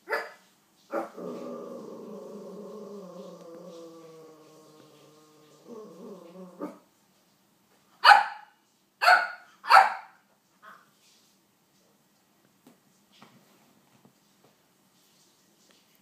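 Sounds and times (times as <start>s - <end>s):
dog barking: 0.0s - 1.1s, 8.0s - 10.8s.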